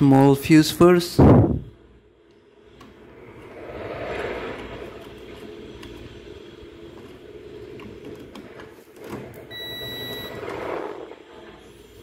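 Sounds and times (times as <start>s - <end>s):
multimeter beep: 9.5s - 10.4s.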